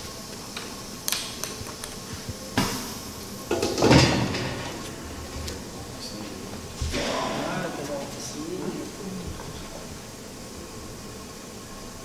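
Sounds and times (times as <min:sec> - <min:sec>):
steady low hum: 0:00.0 - 0:12.0
metal clunks and knocks: 0:03.5 - 0:04.8.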